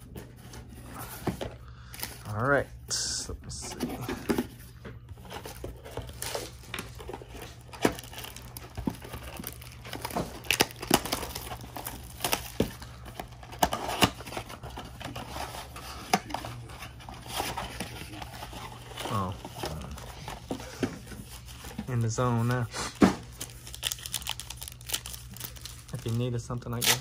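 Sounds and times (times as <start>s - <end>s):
plastic wrap crinkling and tearing: 5.3s - 27.0s.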